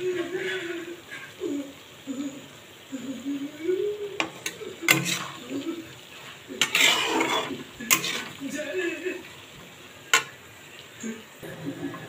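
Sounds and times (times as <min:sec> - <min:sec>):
metal spatula scraping a pan: 0:04.2 - 0:08.6, 0:10.1 - 0:10.4.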